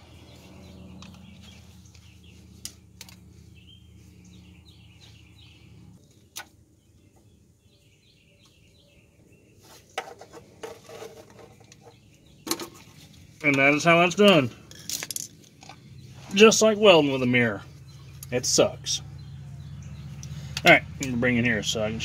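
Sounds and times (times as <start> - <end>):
birds chirping faintly: 0.0 - 22.0
low steady hum: 10.5 - 22.0.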